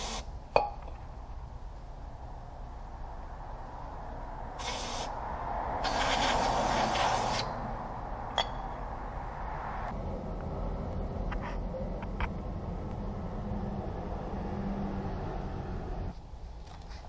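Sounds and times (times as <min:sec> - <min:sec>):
aerosol spray hiss: 0:00.0 - 0:00.3, 0:04.6 - 0:05.2, 0:05.8 - 0:07.5.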